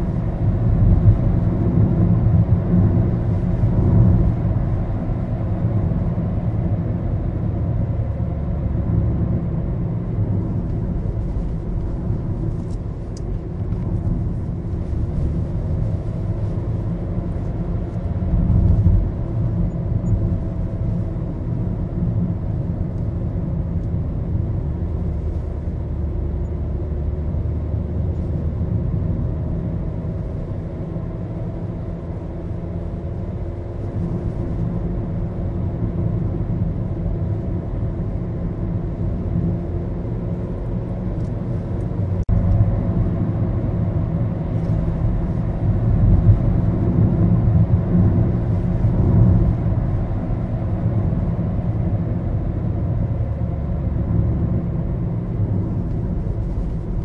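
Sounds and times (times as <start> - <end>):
car road and engine rumble: 0.0 - 57.0.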